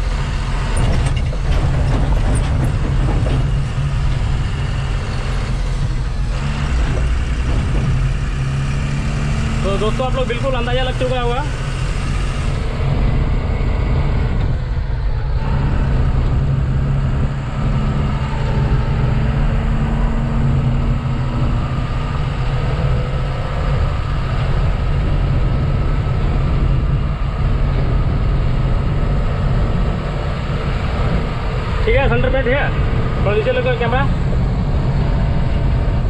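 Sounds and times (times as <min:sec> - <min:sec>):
truck engine and road drone: 0:00.0 - 0:36.0.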